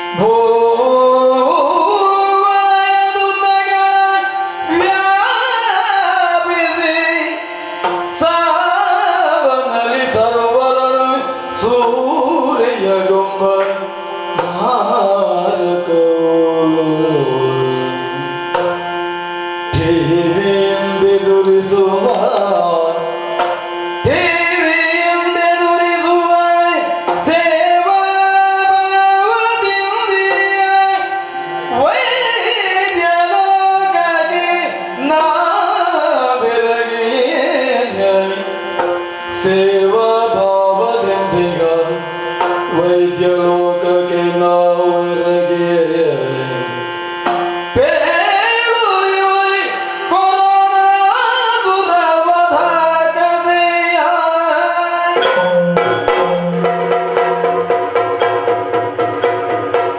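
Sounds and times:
person singing melody: 0.0 - 59.9
sharp drum strokes: 55.2 - 59.9.

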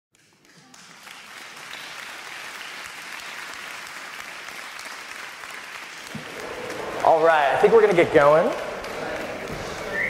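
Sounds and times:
audience applauding: 0.2 - 10.0.

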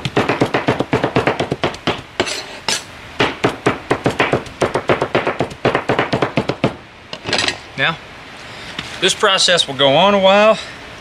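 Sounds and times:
cleaver chopping meat on board: 0.0 - 2.2, 3.2 - 6.8.

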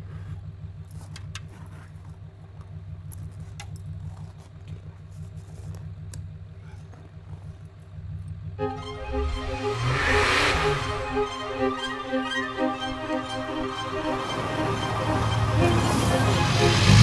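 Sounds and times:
engine idling: 0.0 - 8.6.

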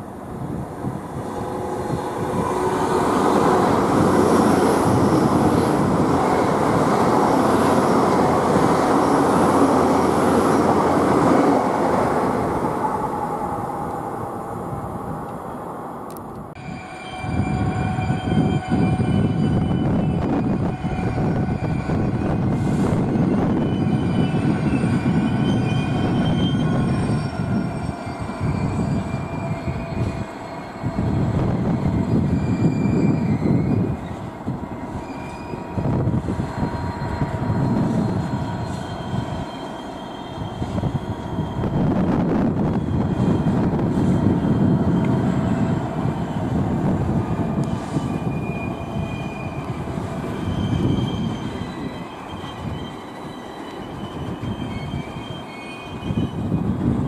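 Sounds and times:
diesel locomotive engine rumbling: 0.0 - 57.0
wheels squealing on track: 16.7 - 57.0.

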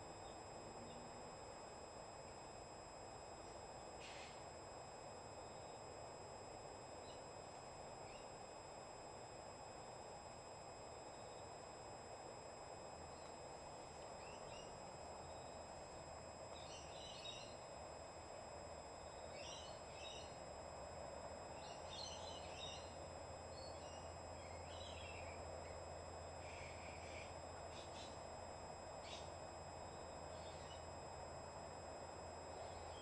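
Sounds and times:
steady background hum: 0.0 - 33.0
small birds chirping: 16.6 - 17.6, 21.6 - 23.0, 29.0 - 29.3, 30.3 - 30.8.

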